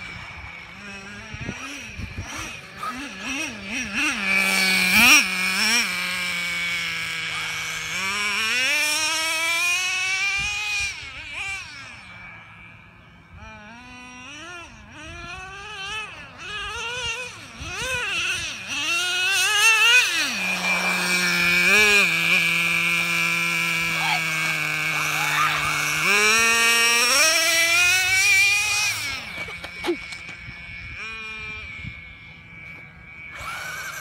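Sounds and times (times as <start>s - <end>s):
rc truck engine revving: 0.0s - 34.0s
steady high whine: 0.0s - 34.0s.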